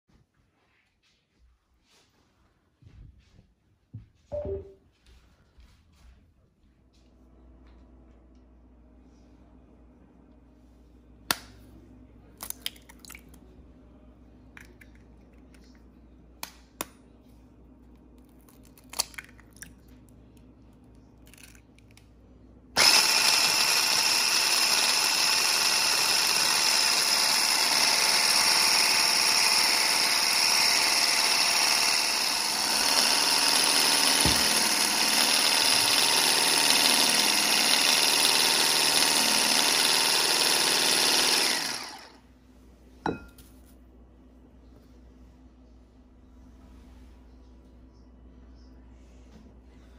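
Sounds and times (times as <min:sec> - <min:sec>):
electric stick blender whisking: 0:22.8 - 0:42.2.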